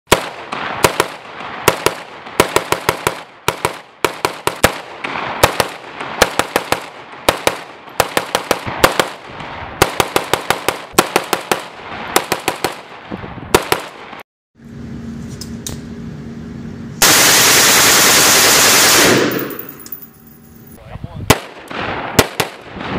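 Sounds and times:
rifle shots echoing: 0:00.1 - 0:14.1, 0:17.0 - 0:19.8, 0:21.3 - 0:22.9.

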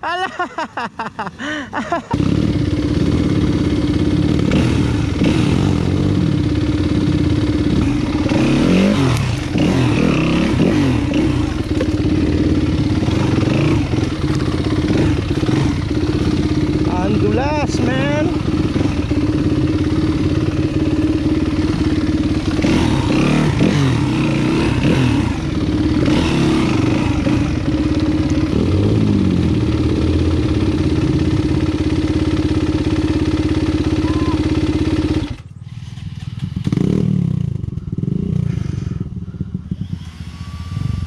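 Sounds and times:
dirt bike engine revving: 0:01.4 - 0:41.0.

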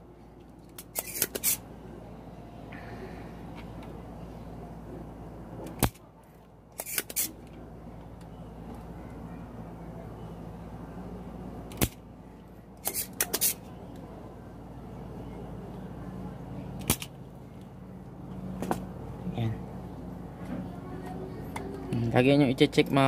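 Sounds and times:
steady low hum: 0:00.0 - 0:23.0
desoldering pump snapping: 0:05.6 - 0:06.0, 0:11.7 - 0:12.0.

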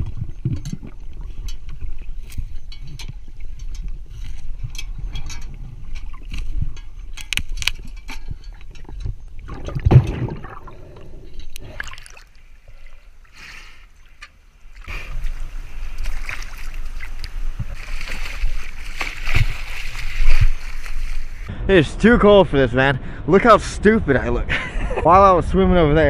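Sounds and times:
person wading through water: 0:08.2 - 0:21.5
underwater knocks: 0:09.5 - 0:11.1.

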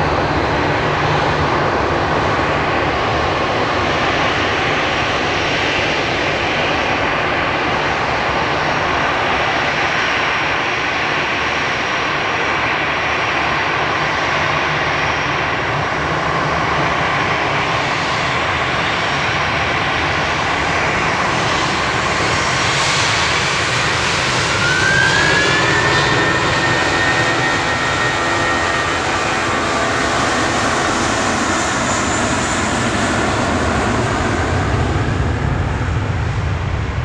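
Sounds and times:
jet engines whining and rumbling: 0:00.0 - 0:37.0
higher whine rising in pitch: 0:23.6 - 0:32.4.

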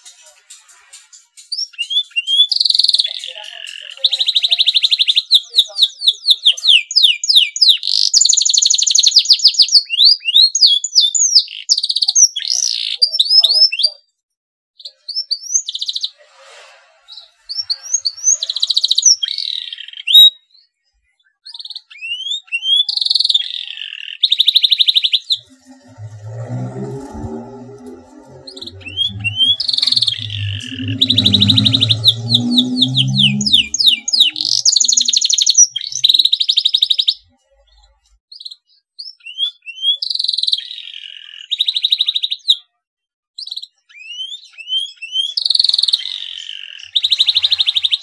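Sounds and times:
canary singing: 0:25.3 - 0:35.5.

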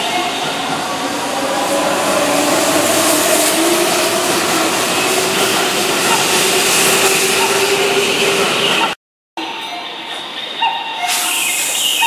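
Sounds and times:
train wheels rumbling on rail: 0:00.0 - 0:09.0.

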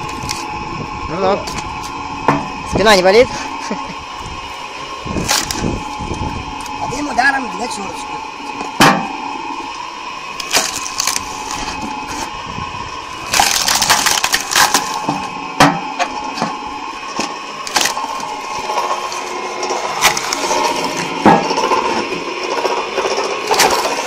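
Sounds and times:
log splitter motor hum: 0:00.0 - 0:24.0
wood cracking and splintering: 0:05.2 - 0:05.8, 0:10.4 - 0:12.3, 0:13.1 - 0:15.3, 0:17.1 - 0:24.0.

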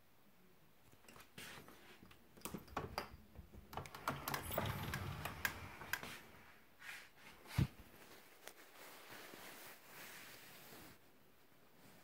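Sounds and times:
closet door clicks: 0:02.4 - 0:06.3
low rumble of sliding door: 0:03.8 - 0:06.3.

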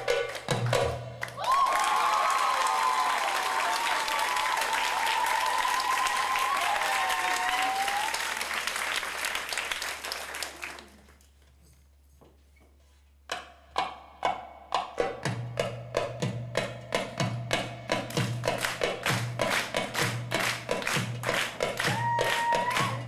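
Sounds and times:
audience applauding and cheering: 0:01.2 - 0:11.2, 0:18.2 - 0:23.0.

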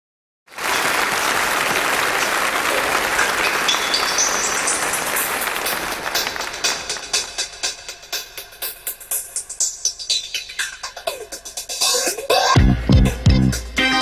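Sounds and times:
crowd applause: 0:00.5 - 0:08.3.

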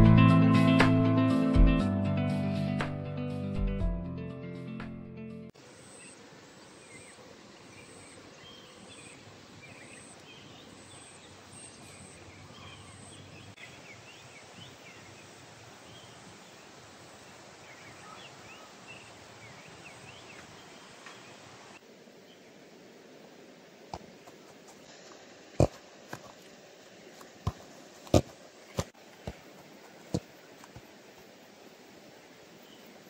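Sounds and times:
steady hiss: 0:14.3 - 0:33.0.

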